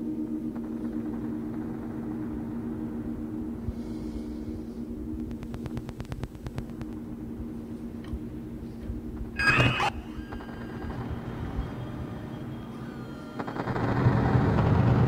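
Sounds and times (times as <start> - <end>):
feedback drone low tones: 0.0 - 15.0
rapid clicks: 5.2 - 7.0.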